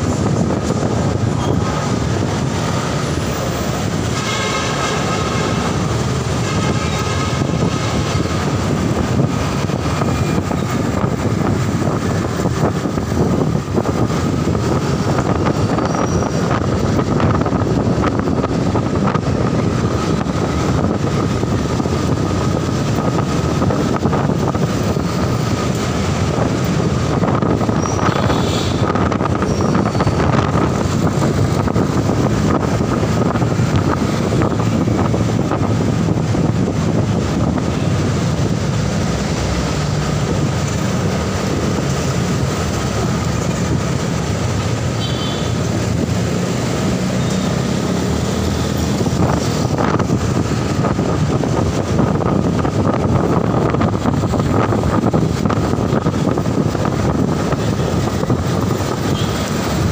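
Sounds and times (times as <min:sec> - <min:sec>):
road and wind noise: 0:00.0 - 0:59.9.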